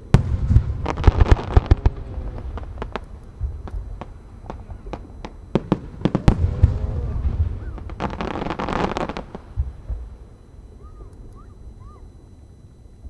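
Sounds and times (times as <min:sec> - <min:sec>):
firework crackling: 0:00.0 - 0:10.2
firework shells bursting: 0:00.2 - 0:10.1.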